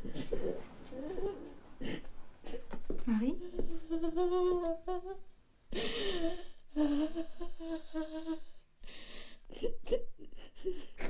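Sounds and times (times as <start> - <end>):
woman sobbing: 3.4 - 11.0.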